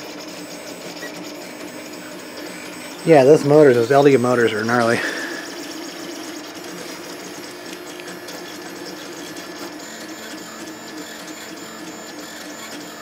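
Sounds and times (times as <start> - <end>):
stepper motors whining and buzzing: 0.0 - 13.0.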